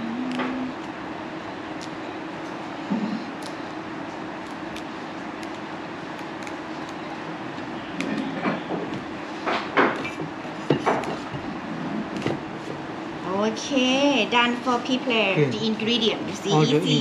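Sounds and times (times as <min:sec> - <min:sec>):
faint low hum: 0:00.0 - 0:09.4.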